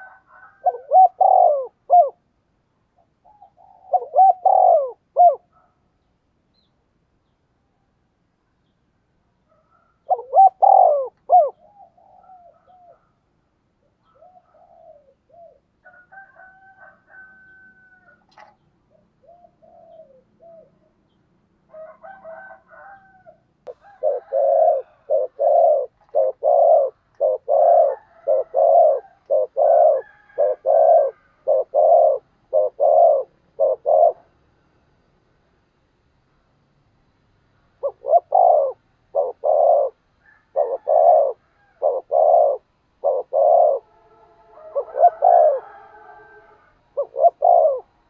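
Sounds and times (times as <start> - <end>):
rapid short dove coos: 0.0 - 2.2, 3.2 - 5.5, 9.7 - 13.2, 22.1 - 34.4, 37.8 - 48.0
dove cooing: 0.0 - 2.4, 3.0 - 5.7, 9.5 - 13.2, 14.0 - 21.1, 21.7 - 34.5, 37.7 - 48.0.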